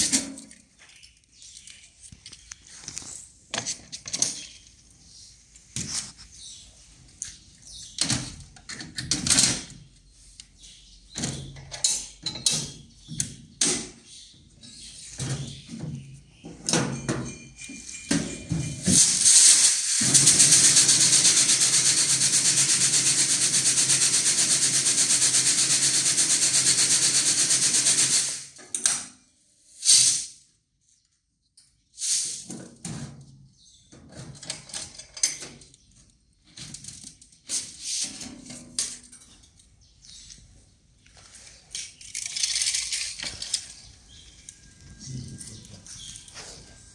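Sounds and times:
machine rattling and humming: 19.0s - 28.5s.

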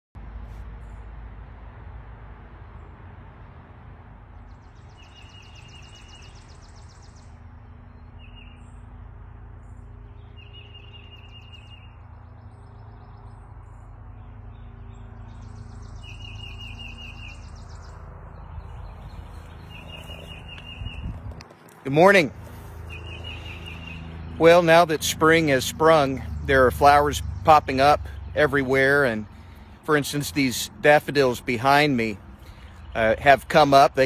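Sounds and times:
songbirds trilling: 4.3s - 34.0s
buzzy high bird trill: 10.2s - 13.2s, 14.6s - 18.0s, 22.5s - 24.8s.

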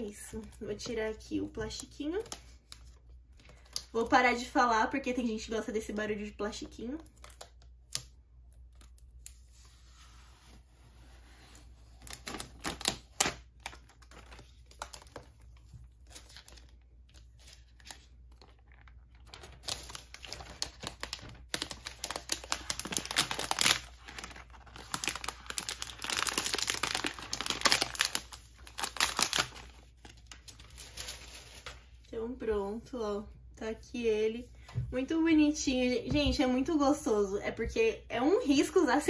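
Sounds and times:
plastic film crackling: 11.9s - 32.0s.

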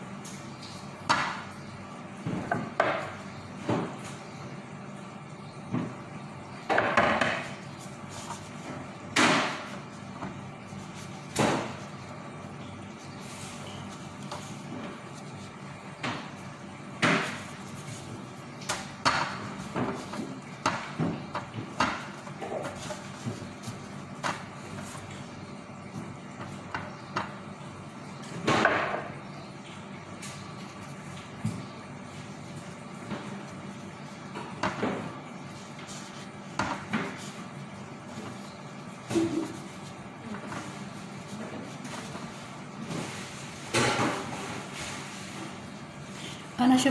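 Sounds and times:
plastic gloves rustling and tapping: 6.8s - 27.4s.

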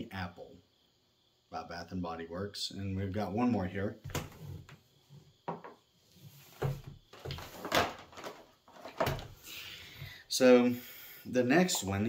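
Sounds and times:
objects knocking and clunking: 5.4s - 5.8s, 6.5s - 9.4s.

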